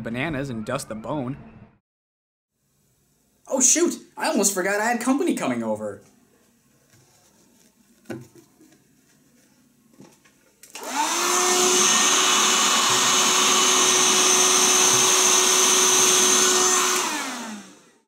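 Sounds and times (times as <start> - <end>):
handheld vacuum cleaner motor: 10.6 - 18.0.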